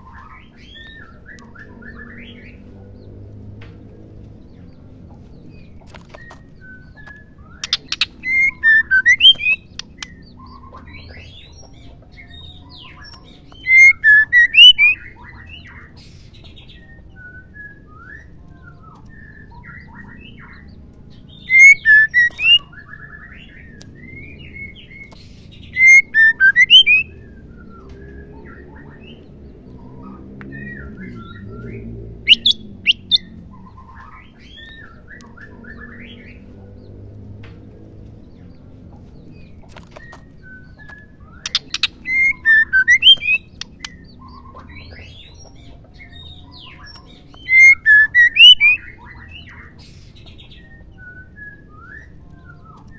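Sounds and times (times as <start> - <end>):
bird calling in quick notes: 40.9 - 44.5.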